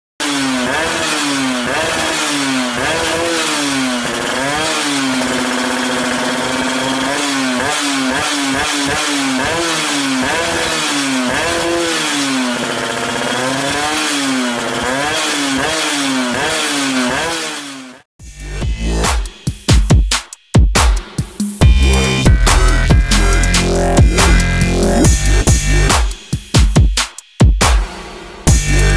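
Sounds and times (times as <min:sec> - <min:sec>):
motorcycle engine revving: 0:00.2 - 0:20.0, 0:21.0 - 0:26.9, 0:28.4 - 0:28.9.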